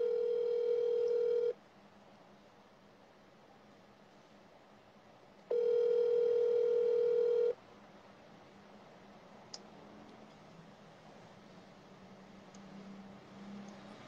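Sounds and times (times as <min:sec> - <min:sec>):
phone call beep: 0:00.0 - 0:01.6, 0:05.5 - 0:07.6.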